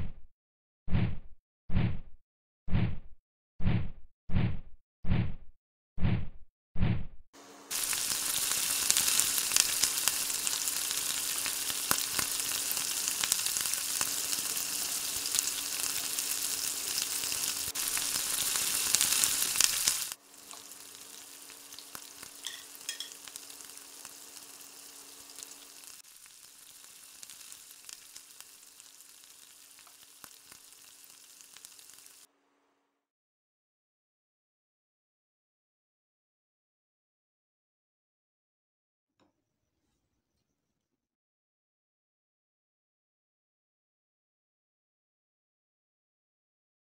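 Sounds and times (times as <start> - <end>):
dough sizzling in hot oil: 7.6 - 32.3
spatula stirring: 7.9 - 24.2.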